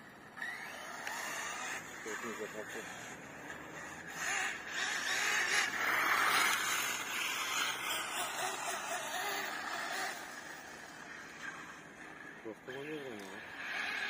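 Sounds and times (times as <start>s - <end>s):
rc car tyres and motor hiss: 0.0s - 14.0s.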